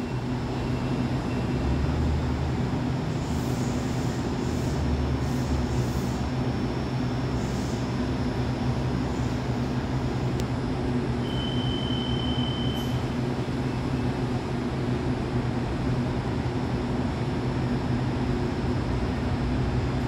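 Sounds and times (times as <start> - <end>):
short high beep: 11.2 - 13.0.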